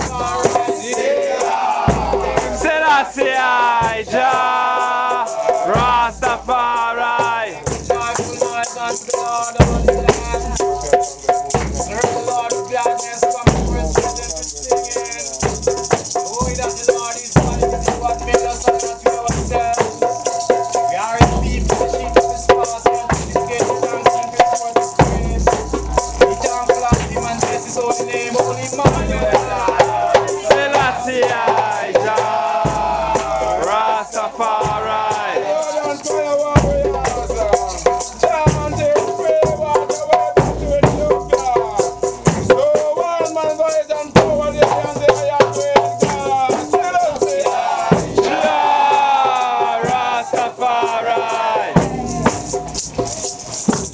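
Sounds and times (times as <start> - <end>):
men chanting a hymn: 0.0 - 53.5
maracas clattering: 0.0 - 53.9
deep drum thumps: 28.8 - 33.6.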